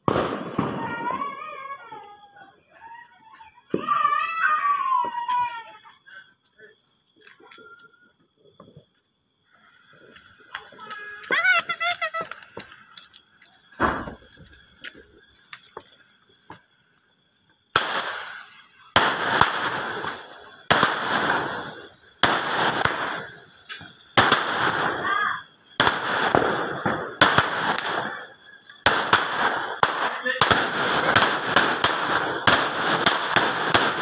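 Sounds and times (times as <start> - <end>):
firework shots with crackling: 0.0 - 2.2, 9.6 - 17.0, 17.6 - 34.0
small firework pops: 0.0 - 2.4, 3.4 - 9.0, 9.6 - 16.8, 17.4 - 34.0.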